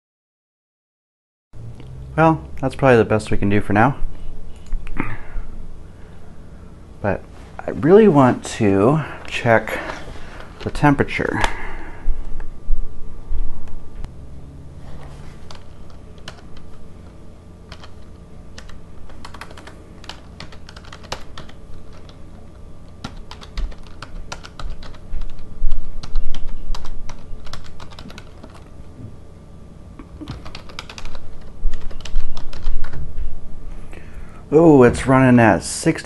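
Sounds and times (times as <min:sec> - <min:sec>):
keyboard keystrokes clicking: 0:15.4 - 0:16.7, 0:17.7 - 0:18.0, 0:18.6 - 0:22.2, 0:23.0 - 0:25.4, 0:26.0 - 0:28.6, 0:30.2 - 0:33.0.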